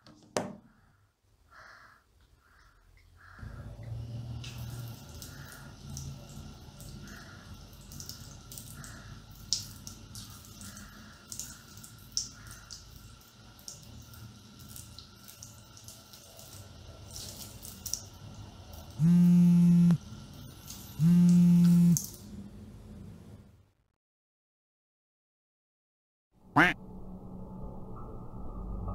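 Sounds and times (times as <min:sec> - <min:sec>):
water dripping: 0:02.4 - 0:22.3
mobile phone vibrating: 0:19.0 - 0:20.0, 0:21.0 - 0:22.0.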